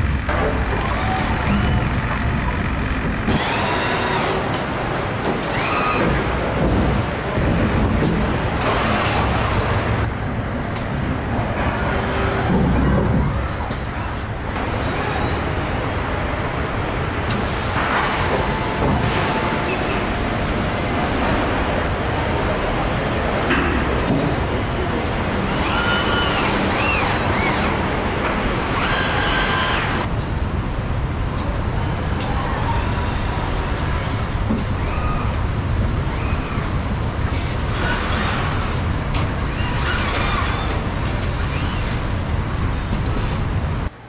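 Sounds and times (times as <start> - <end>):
steady machine rumble: 0.0 - 5.3
robot arm motors whining: 0.0 - 7.2, 8.0 - 10.1, 11.5 - 30.2, 31.2 - 43.9.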